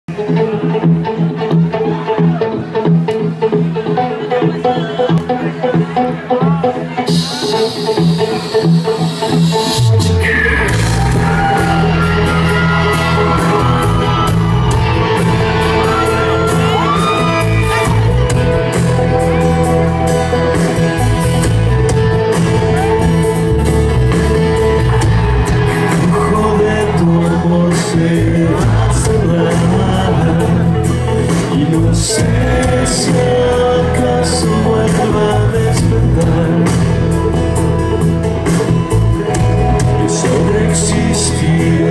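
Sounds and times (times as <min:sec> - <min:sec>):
rock band playing live: 0:00.1 - 0:41.9
person singing: 0:03.8 - 0:23.5, 0:24.6 - 0:37.7, 0:38.6 - 0:41.9
crowd shouting and whooping: 0:10.1 - 0:30.6, 0:32.0 - 0:34.3, 0:38.0 - 0:41.9.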